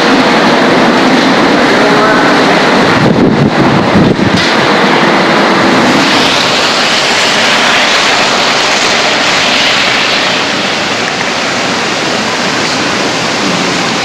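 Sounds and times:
strong wind blowing: 0.0s - 14.0s.

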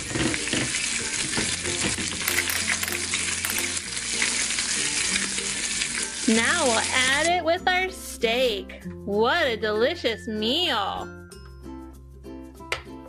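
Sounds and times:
toy stove frying sizzle: 0.0s - 7.4s
faint background music: 0.0s - 13.0s.

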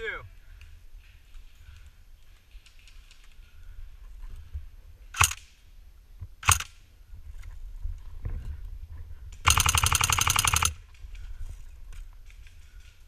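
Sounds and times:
airsoft gun full-auto burst: 5.2s - 5.4s, 6.4s - 6.7s, 9.5s - 10.8s
airsoft gun single shots: 6.4s - 6.7s.

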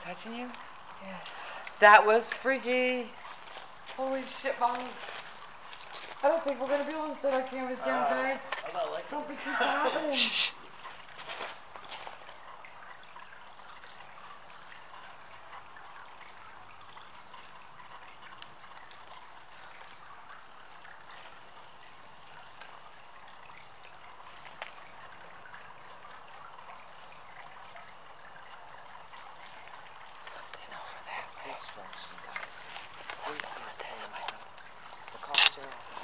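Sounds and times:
faint ticks: 10.9s - 36.0s
soft hiss: 18.5s - 36.0s.

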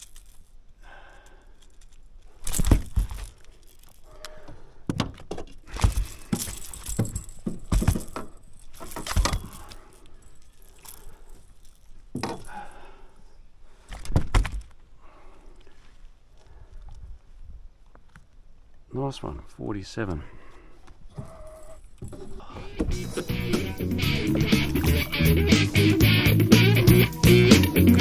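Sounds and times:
metallic jangling of lure and pliers: 0.0s - 0.6s, 1.2s - 4.2s, 5.9s - 12.6s.

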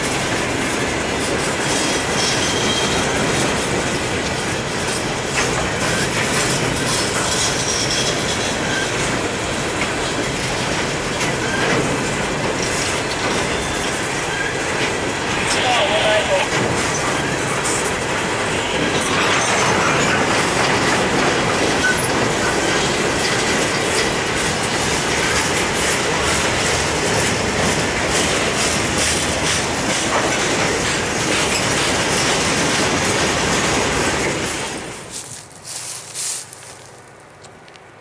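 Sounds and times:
steel wheels clattering over rails: 0.0s - 35.4s.

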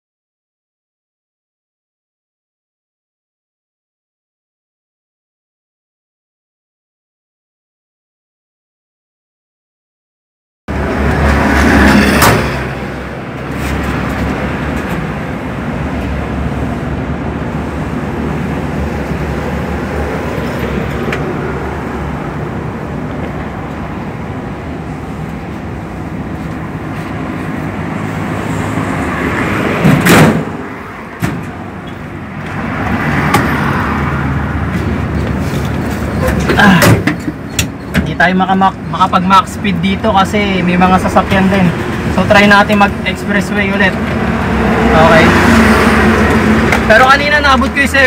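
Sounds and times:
sharp knock: 29.8s - 30.6s
engine running: 40.5s - 47.8s.

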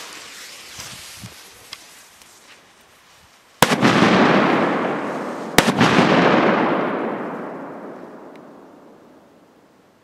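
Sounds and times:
firecrackers exploding: 3.6s - 9.2s.

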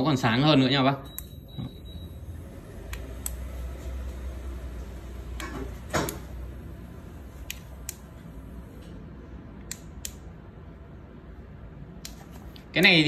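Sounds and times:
flashlight switch clicking: 7.4s - 8.1s, 9.6s - 10.3s.

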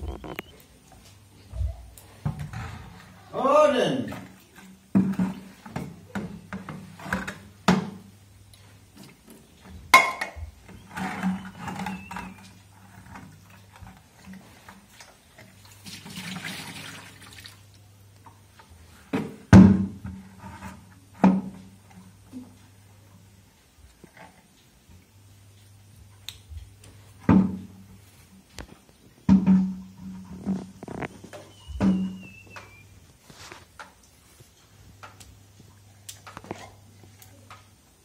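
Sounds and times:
water sloshing in bucket: 10.8s - 17.7s.

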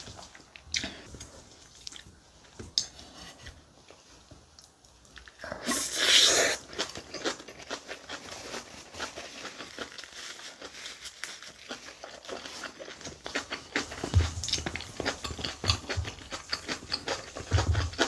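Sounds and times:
wet crunchy chewing: 5.2s - 18.0s.

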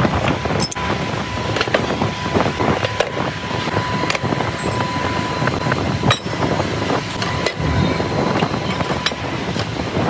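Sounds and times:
workshop machinery rumble: 0.0s - 10.0s
faint high whine: 0.7s - 9.4s
steel rail pieces clanking: 2.7s - 9.8s.

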